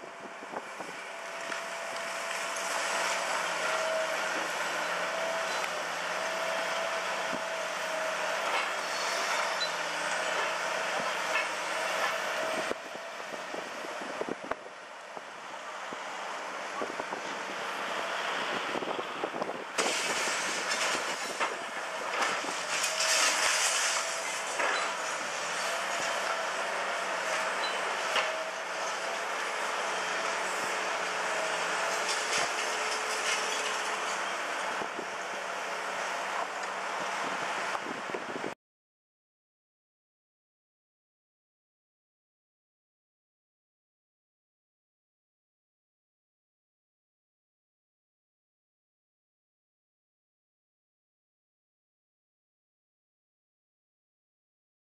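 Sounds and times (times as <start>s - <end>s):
excavator engine and hydraulics: 0.0s - 38.6s.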